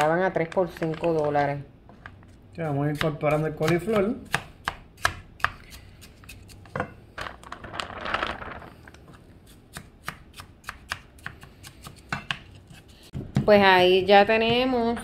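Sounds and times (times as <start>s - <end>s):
soft rustle of food from bag: 7.4s - 8.9s.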